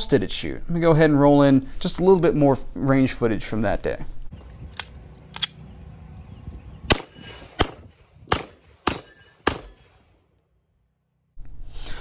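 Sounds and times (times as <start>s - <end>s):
ring of struck steel targets: 6.9s - 10.2s
pistol shots: 6.9s - 10.3s.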